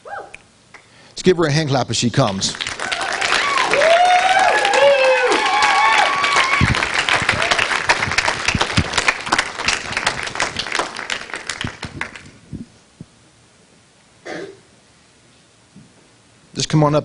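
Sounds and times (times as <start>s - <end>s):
audience applause: 2.2s - 12.3s
short cough: 14.2s - 14.7s.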